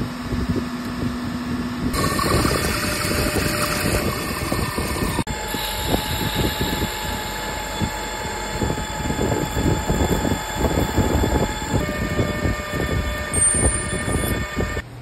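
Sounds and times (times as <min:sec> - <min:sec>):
lathe machine whine: 0:01.9 - 0:14.9
rattling metal cutting noise: 0:02.0 - 0:14.8.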